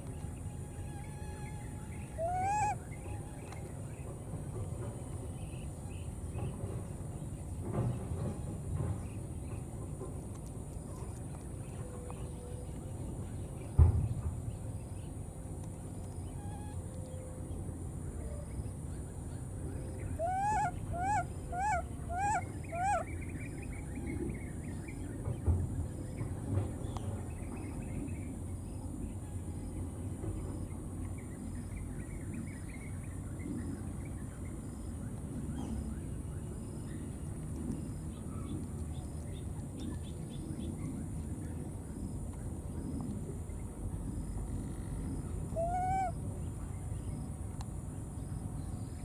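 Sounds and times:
animal calls: 1.0s - 2.8s, 20.2s - 23.1s, 45.6s - 46.2s.

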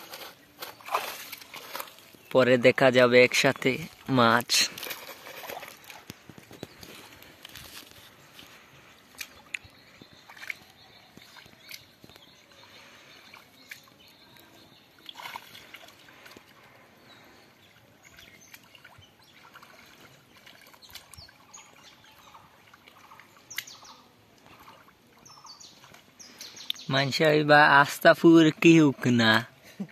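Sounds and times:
hands splashing in muddy water: 0.0s - 2.3s, 9.1s - 14.0s
birds chirping: 0.0s - 29.9s.

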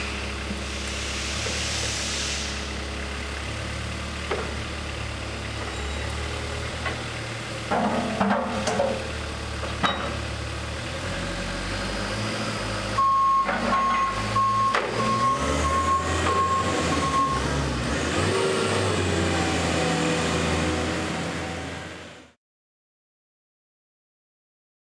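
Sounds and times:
high warning beep: 13.0s - 17.5s.

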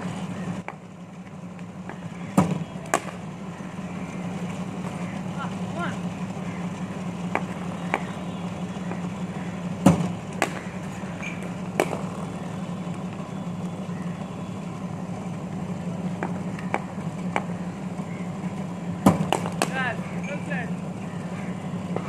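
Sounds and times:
bowling machine motors humming: 0.0s - 22.0s
cricket ball knocks: 9.8s - 10.7s, 11.8s - 12.2s, 19.1s - 19.8s.

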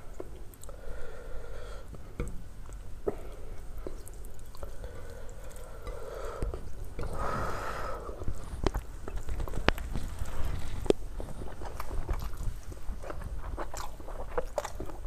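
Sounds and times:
fingers squishing wet food: 8.1s - 15.0s.

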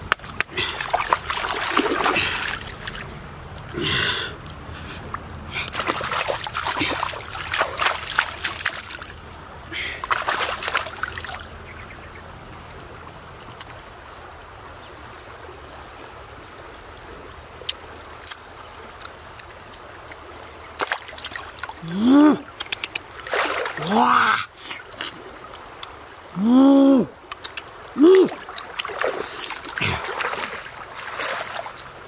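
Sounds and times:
steady water noise: 0.0s - 32.0s
hands splashing in water: 0.1s - 3.0s, 5.6s - 9.1s, 10.0s - 11.4s, 22.6s - 23.9s, 28.2s - 31.9s
person exclaiming: 21.8s - 22.5s, 23.8s - 24.6s, 26.4s - 27.2s, 28.0s - 28.4s
small clicks: 22.6s - 23.2s.

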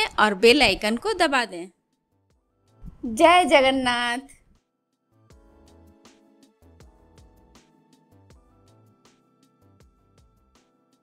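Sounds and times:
faint music with steady beat: 4.5s - 11.0s.

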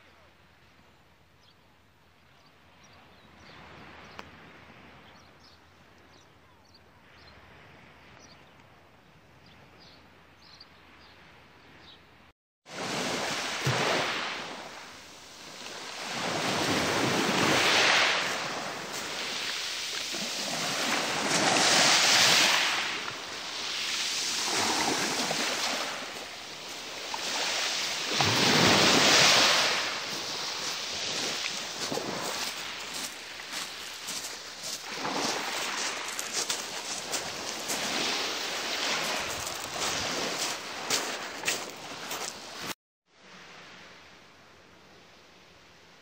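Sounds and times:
waves breaking on pebble beach: 12.7s - 42.8s.

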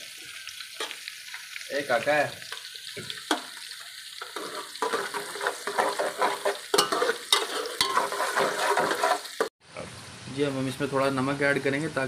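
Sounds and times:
onions sizzling in oil: 0.0s - 12.0s
metal spoon scraping a pot: 4.2s - 9.5s.

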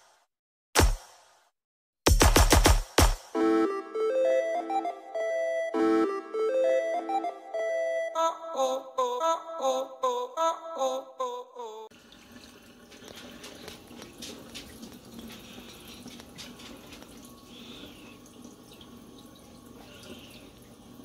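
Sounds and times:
music: 2.1s - 9.4s.

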